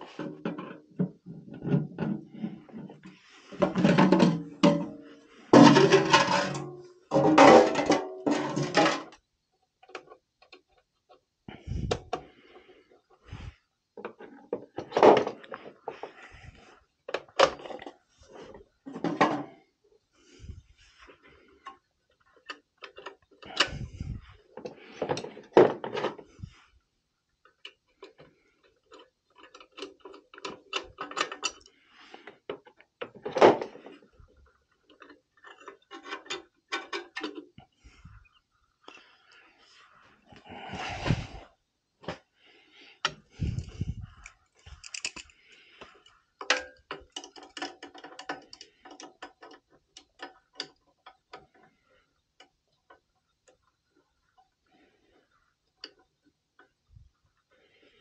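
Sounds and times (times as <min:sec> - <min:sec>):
hand tools clicking and knocking on metal: 0:00.0 - 0:09.2, 0:21.6 - 0:26.3, 0:27.4 - 0:37.7, 0:43.0 - 0:53.8
metal rattle: 0:03.5 - 0:09.2.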